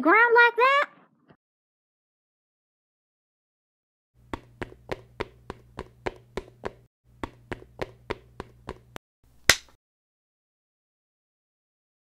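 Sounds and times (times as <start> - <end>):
footstep taps: 4.2 - 9.0.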